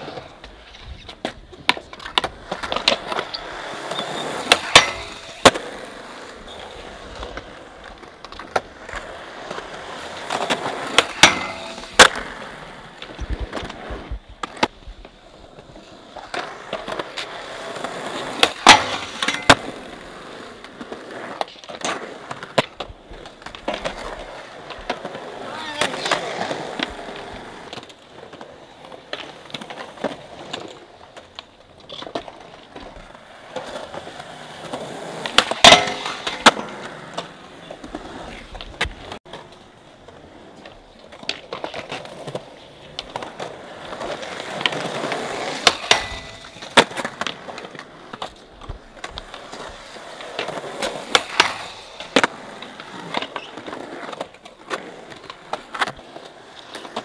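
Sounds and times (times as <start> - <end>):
skateboard clacks: 0.0 - 57.0
skateboard wheels rolling on concrete: 0.0 - 57.0.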